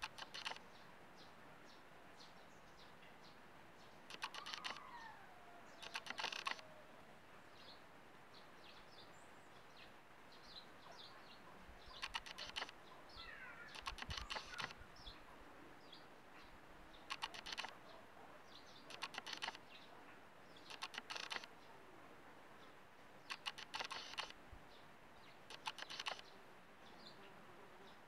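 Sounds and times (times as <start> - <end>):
rapid clicking bursts: 0.0 - 0.6, 4.1 - 4.8, 5.8 - 6.6, 12.0 - 12.8, 13.7 - 14.8, 17.1 - 17.8, 18.9 - 19.6, 20.6 - 21.5, 23.2 - 24.4, 25.5 - 26.2
birds chirping: 0.0 - 6.9, 7.5 - 28.0.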